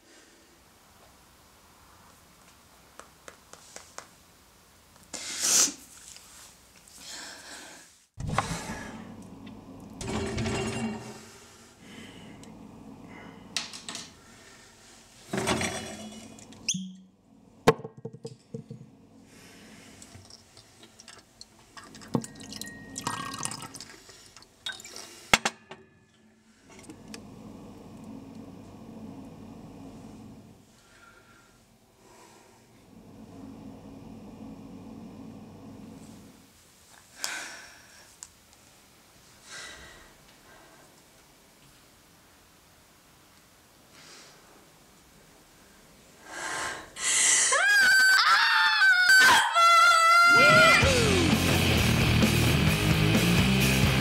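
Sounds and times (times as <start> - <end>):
liquid pouring into a glass: 20.2 - 25.0
glass clinks: 22.2 - 23.2.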